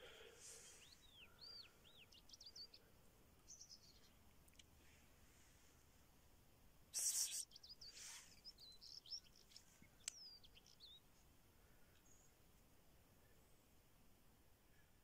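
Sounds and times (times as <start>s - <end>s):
small birds chirping: 0.0s - 5.7s, 6.9s - 12.4s.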